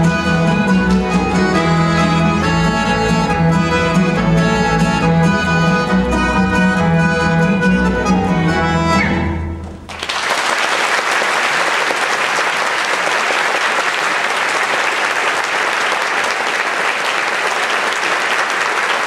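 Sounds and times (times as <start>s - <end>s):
folk dance music: 0.0s - 19.0s
audience applause: 9.9s - 19.0s.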